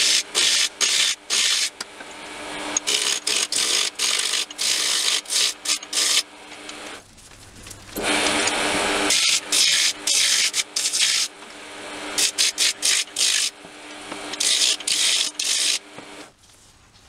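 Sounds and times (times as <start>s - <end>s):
gouge cutting wood on a lathe: 0.0s - 6.9s, 8.0s - 16.3s
lathe motor hum: 0.0s - 7.0s, 8.0s - 16.3s.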